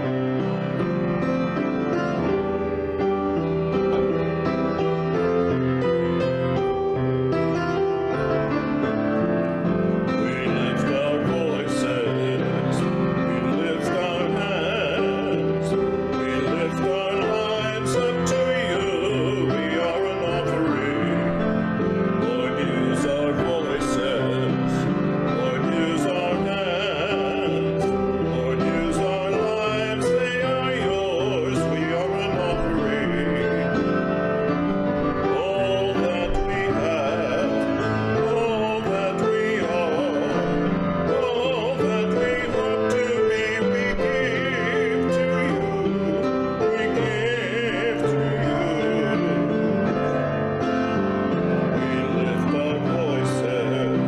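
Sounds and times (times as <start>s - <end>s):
hymn played on piano: 0.0s - 54.0s
voices singing: 10.1s - 21.4s, 22.2s - 34.0s, 35.2s - 49.5s.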